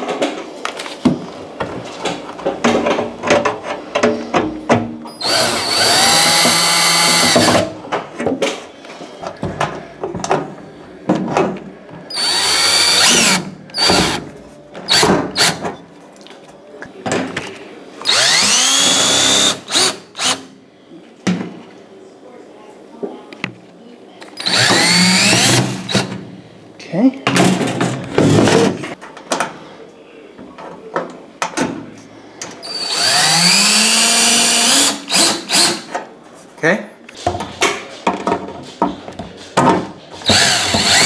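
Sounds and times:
cordless drill driving screws: 5.2 - 7.6, 12.1 - 14.2, 18.0 - 20.4, 24.4 - 26.1, 32.6 - 35.9, 40.2 - 41.0.

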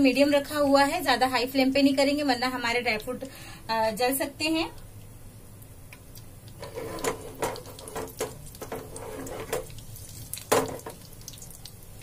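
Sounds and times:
nuts sizzling in ghee: 6.1 - 12.0
spatula scraping and tapping pan: 6.6 - 9.8.

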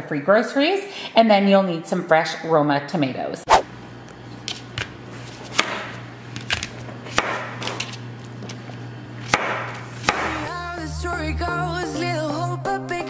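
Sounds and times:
knife chopping on cutting board: 7.1 - 7.5, 9.3 - 10.4.

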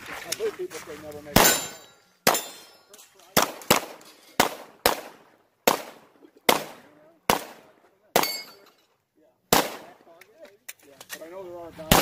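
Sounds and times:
pistol shots: 1.4 - 2.7, 3.3 - 8.5, 9.5 - 10.0.

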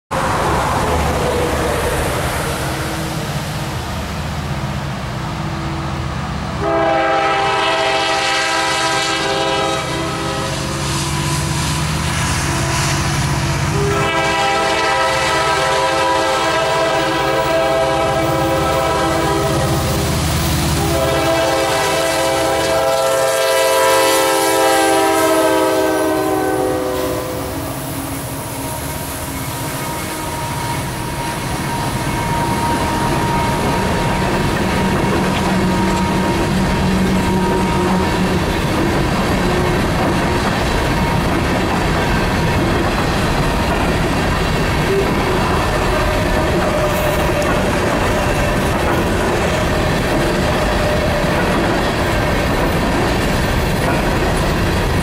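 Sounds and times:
train rumble: 0.1 - 55.0
locomotive air horn blasts: 6.6 - 34.2, 34.8 - 38.5, 44.9 - 47.3
freight cars rolling past: 24.3 - 55.0.

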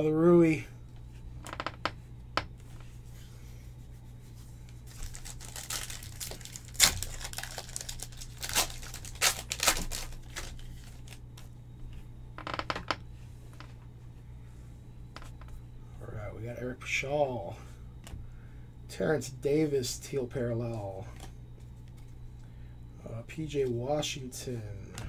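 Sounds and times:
steady low hum: 0.0 - 25.0
foil pack tearing and crinkling: 4.9 - 11.2.

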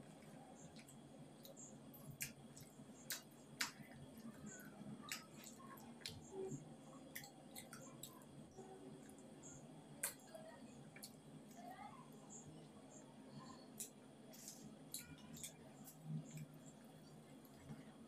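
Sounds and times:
low room hum: 0.0 - 18.0
soft clicks of eating by hand: 0.1 - 6.3, 7.1 - 8.2, 10.0 - 11.7.

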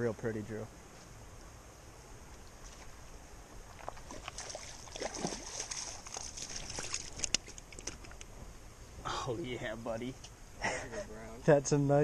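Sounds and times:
creek water running: 2.0 - 12.0
fish splashing in shallows: 3.7 - 8.2.

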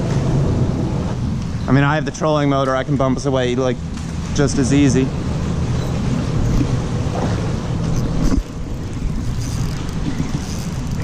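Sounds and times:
choppy water: 0.0 - 11.0
wind rumbling on microphone: 5.0 - 11.0.

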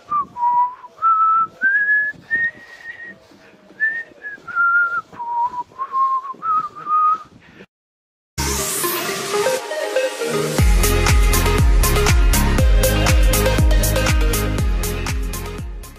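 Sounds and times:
person whistling a tune: 3.9 - 7.3.

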